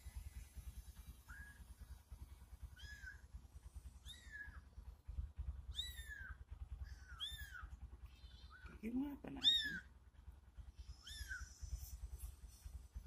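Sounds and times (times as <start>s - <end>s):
kittens mewing: 5.7s - 8.8s, 10.9s - 12.0s.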